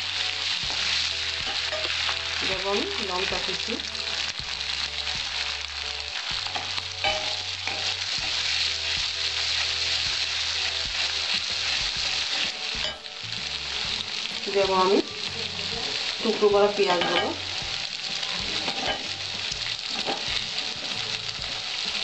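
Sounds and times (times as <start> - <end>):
food sizzling in hot oil: 0.0 - 22.0
wooden spatula scraping pan: 18.2 - 19.2, 19.8 - 21.2.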